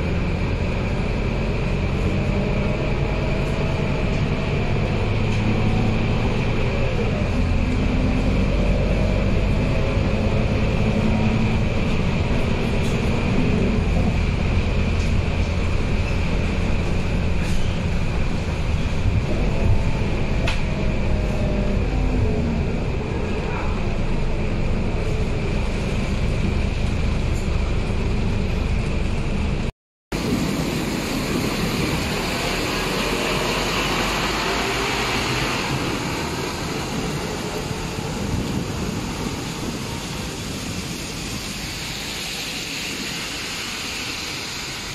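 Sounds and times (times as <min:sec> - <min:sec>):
bus diesel engine rumble: 0:00.0 - 0:44.9
road and tyre noise: 0:00.0 - 0:44.9
heavy rain hissing: 0:30.2 - 0:44.9.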